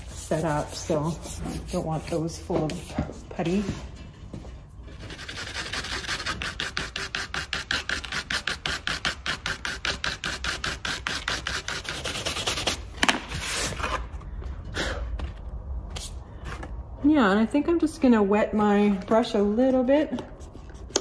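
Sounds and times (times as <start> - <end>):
stiff brush scrubbing rapidly: 0.0 - 2.4.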